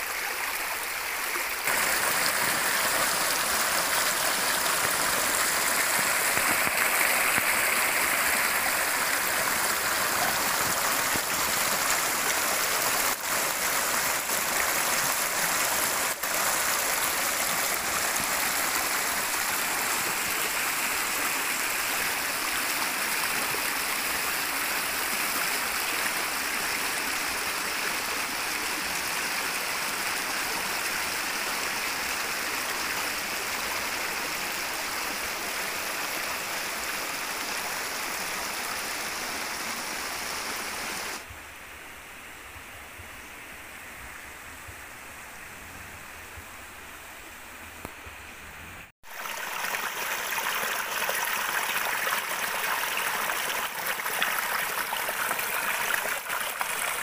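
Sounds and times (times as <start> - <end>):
stream water rushing and burbling: 0.0 - 41.3, 43.4 - 57.0.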